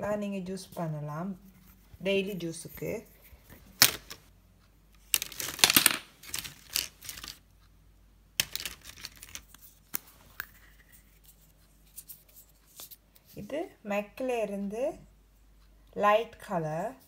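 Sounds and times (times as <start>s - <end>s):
plastic tubes clicking and rattling: 5.0s - 7.4s, 8.4s - 11.4s.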